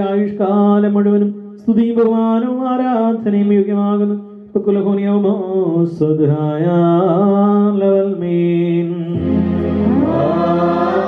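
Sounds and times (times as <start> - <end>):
man chanting into microphone: 0.0 - 9.2
low steady drone note: 9.2 - 11.0
voices chanting: 9.2 - 11.0.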